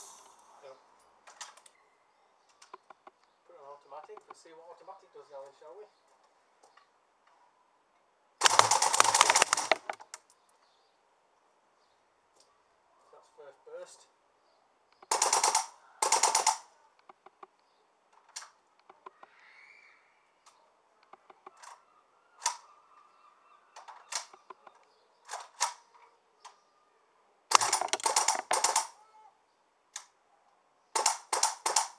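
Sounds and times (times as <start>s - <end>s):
airsoft rifle firing: 8.4s - 10.0s, 15.1s - 16.7s, 27.5s - 29.0s, 31.0s - 31.9s.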